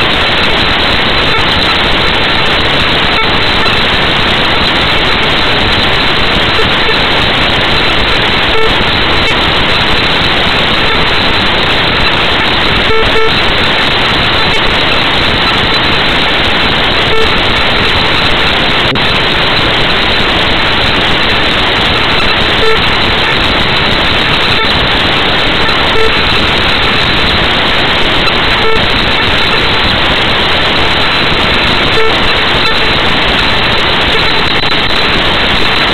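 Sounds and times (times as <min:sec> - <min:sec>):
loud static noise: 0:00.0 - 0:35.9
short beeps: 0:12.8 - 0:13.4.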